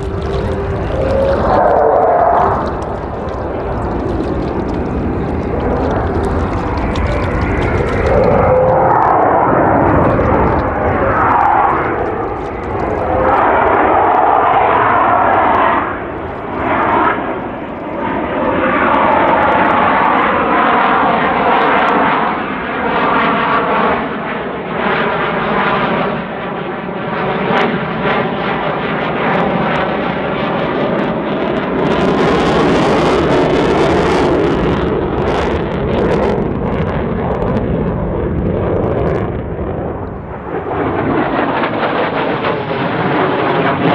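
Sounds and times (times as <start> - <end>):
sharp crackles: 0.0 - 20.1, 39.8 - 41.9
jet engines roaring: 0.0 - 43.9.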